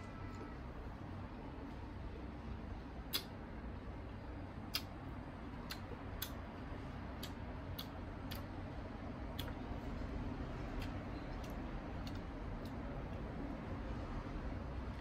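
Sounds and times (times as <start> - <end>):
low background hum: 0.0 - 15.0
crisp chewing of mango: 9.3 - 13.3.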